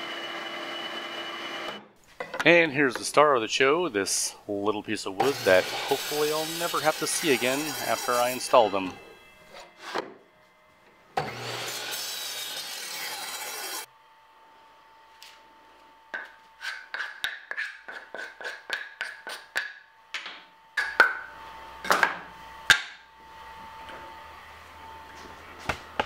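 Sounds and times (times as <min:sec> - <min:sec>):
miter saw cutting wood: 0:00.0 - 0:01.8, 0:05.2 - 0:10.0, 0:11.2 - 0:13.9
wood rubbed on sandpaper: 0:05.4 - 0:08.8.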